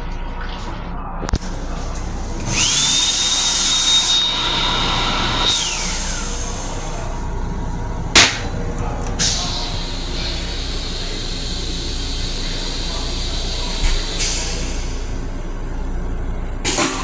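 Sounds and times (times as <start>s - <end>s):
electric motor whining: 2.4s - 6.8s
sharp clunk: 8.1s - 8.5s.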